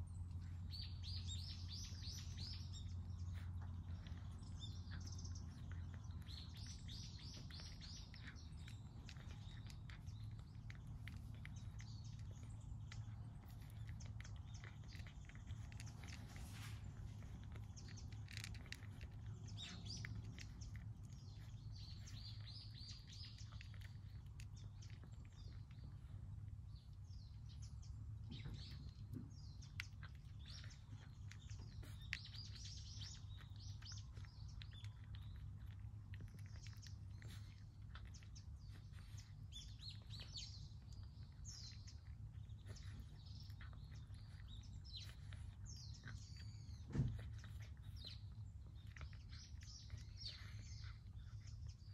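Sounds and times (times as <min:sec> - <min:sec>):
cat crunching dry kibble: 0:00.0 - 0:51.9
low steady hum: 0:00.0 - 0:51.9
small birds chirping: 0:00.0 - 0:51.9
thump: 0:46.9 - 0:47.3.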